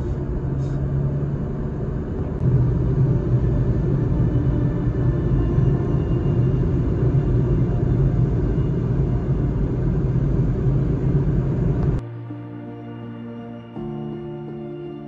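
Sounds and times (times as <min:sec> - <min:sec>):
car road noise: 0:00.0 - 0:12.0
slow ambient music: 0:00.0 - 0:15.0
faint steady hum: 0:02.3 - 0:12.0.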